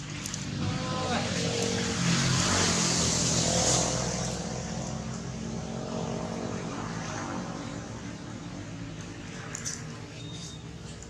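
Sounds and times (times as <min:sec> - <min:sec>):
vehicle engine running: 0:00.0 - 0:06.9.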